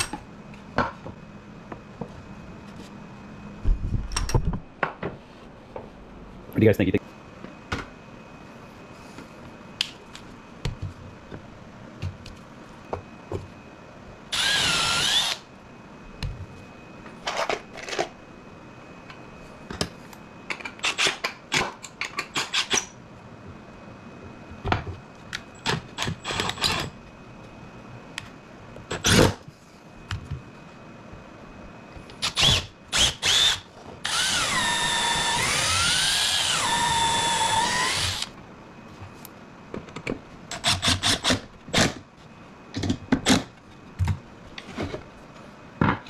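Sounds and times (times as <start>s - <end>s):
cordless drill whine: 14.3s - 15.4s, 32.2s - 38.4s.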